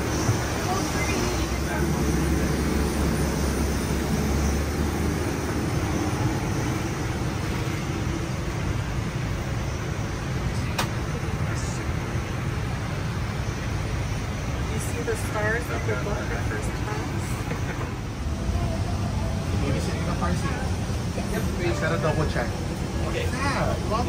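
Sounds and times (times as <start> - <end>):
low rumble: 15.6 - 24.0.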